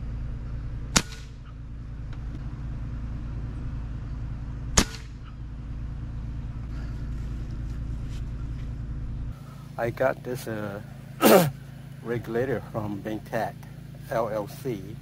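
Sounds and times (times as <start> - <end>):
steady low hum: 0.0 - 15.0
air rifle shot crack: 0.9 - 1.6, 4.7 - 5.4.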